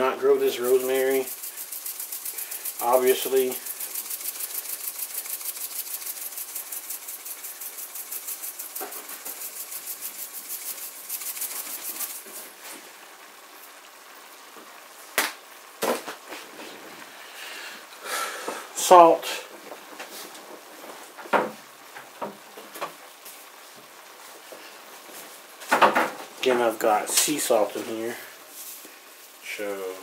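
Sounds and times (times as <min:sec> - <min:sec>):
dry herb rustling: 0:00.0 - 0:13.0.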